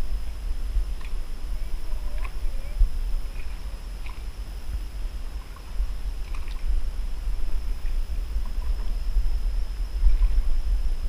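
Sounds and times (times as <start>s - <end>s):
steady low rumble: 0.0s - 11.0s
paddle splashes and drips: 0.9s - 4.4s, 5.2s - 8.9s.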